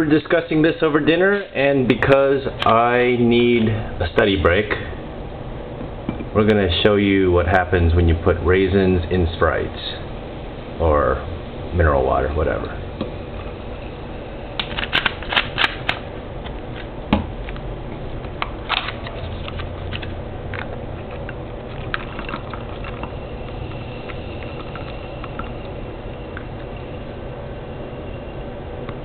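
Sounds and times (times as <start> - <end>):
soda fizzing: 11.0 - 15.6, 19.2 - 28.5.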